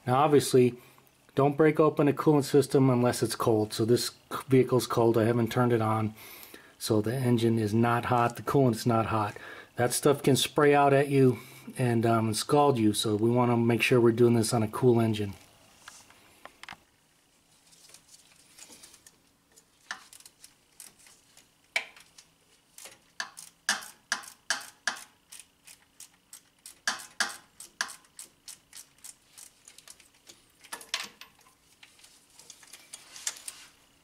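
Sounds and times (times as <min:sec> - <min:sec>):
ratchet clicking: 0:22.8 - 0:31.2.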